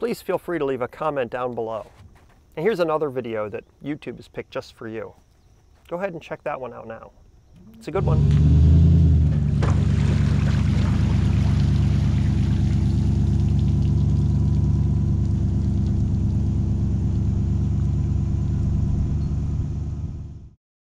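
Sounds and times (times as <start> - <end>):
truck engine rumbling: 7.5 - 20.6
water pouring off a boat: 9.4 - 16.7.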